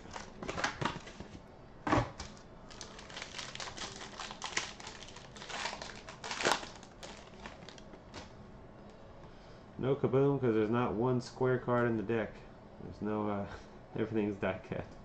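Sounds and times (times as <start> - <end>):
foil wrapper crinkling and tearing: 0.0 - 1.2, 2.7 - 8.3.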